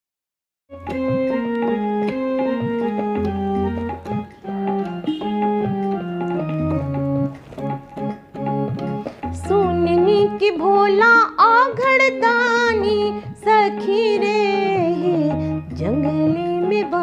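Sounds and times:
low bass notes: 0.7s - 10.5s
electronic keyboard melody: 0.7s - 17.0s.

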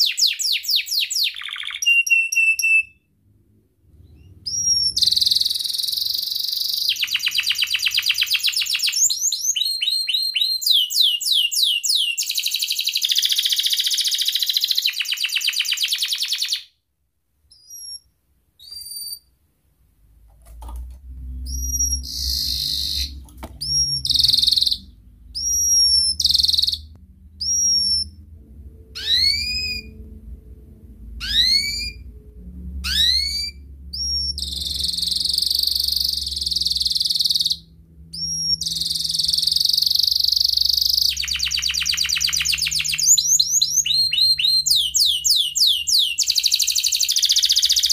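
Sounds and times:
canary singing trills: 0.0s - 3.0s, 4.0s - 16.7s, 17.5s - 19.3s, 21.2s - 30.1s, 31.2s - 32.2s, 32.8s - 47.9s
short bird chirps: 0.0s - 3.0s
low steady hum: 3.0s - 6.3s, 16.8s - 45.9s.

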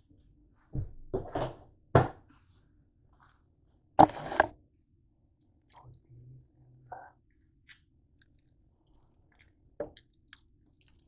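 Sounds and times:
camera bumping and scraping on counter: 4.0s - 4.5s.

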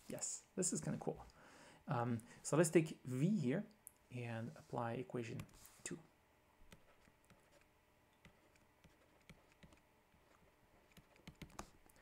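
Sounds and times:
stylus tapping on tablet screen: 10.9s - 12.0s.

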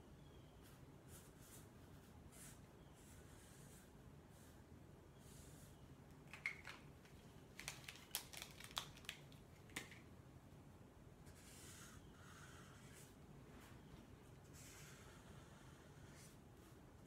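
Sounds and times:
marker scratching on paper: 0.6s - 4.6s, 11.2s - 13.2s, 14.4s - 16.8s
marker caps clicking: 6.2s - 10.1s.

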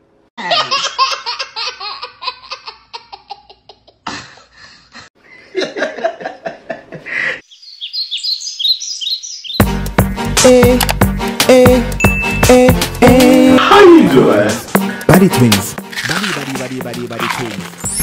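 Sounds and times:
little girl laughing: 0.4s - 4.5s
high bird chirps: 7.5s - 9.7s
music: 9.6s - 18.0s.

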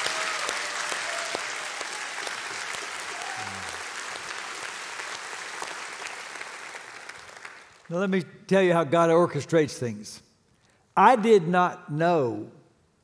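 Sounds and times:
congregation applauding: 0.0s - 8.1s.

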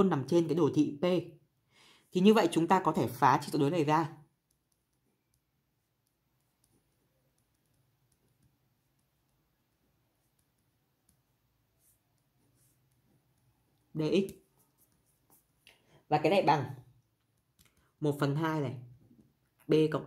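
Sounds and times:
pen writing on paper: 4.4s - 13.5s, 14.4s - 15.6s.

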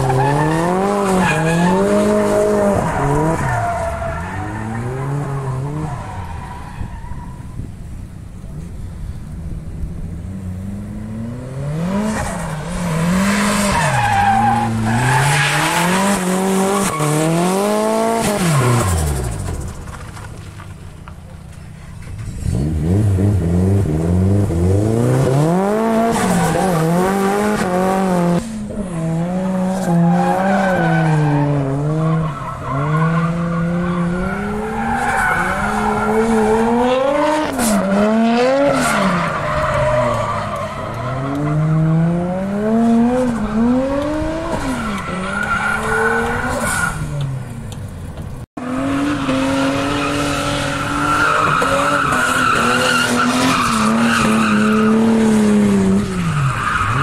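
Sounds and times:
car engine revving: 22.0s - 47.8s.

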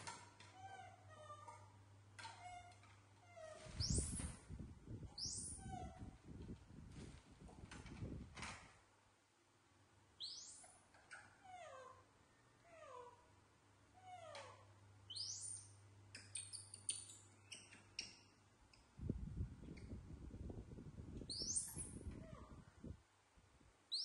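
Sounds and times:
faint clicks and rustles: 5.7s - 8.8s.

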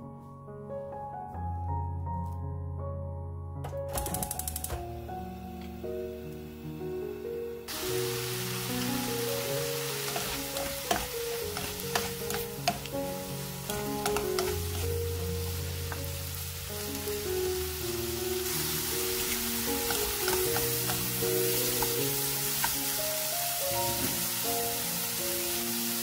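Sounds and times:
vegetables sizzling in oil: 7.7s - 26.0s
spatula stirring in pan: 9.9s - 15.0s.

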